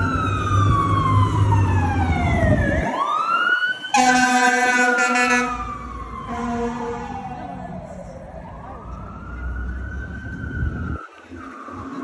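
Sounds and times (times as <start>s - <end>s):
fire engine siren wailing: 0.0s - 12.0s
horn blasts: 3.9s - 5.7s, 6.3s - 7.2s.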